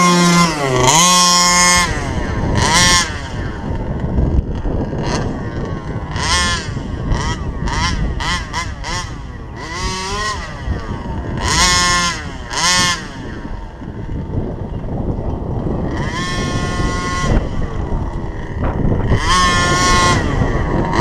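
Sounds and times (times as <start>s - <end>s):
two-stroke engine revving: 0.0s - 21.0s.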